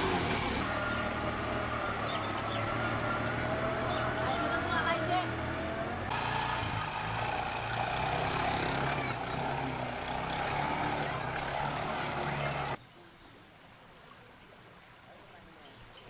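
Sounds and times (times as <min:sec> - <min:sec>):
auto-rickshaw engine running: 0:00.0 - 0:12.8
water rushing: 0:00.0 - 0:12.8.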